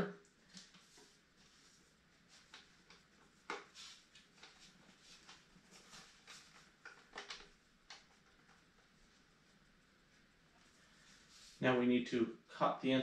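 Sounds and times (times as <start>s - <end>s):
electrical cord rubbing and clicking: 2.3s - 9.8s.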